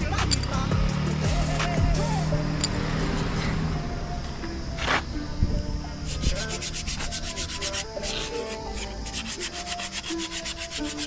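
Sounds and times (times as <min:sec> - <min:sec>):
tool rasping brake pad: 0:06.0 - 0:11.0.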